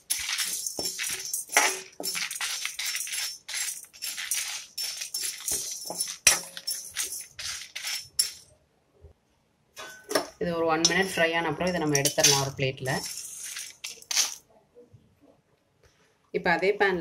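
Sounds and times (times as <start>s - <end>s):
lentils rattling in metal pan: 0.0s - 8.5s, 10.8s - 14.4s
metal ladle stirring: 0.0s - 8.5s, 9.8s - 14.4s.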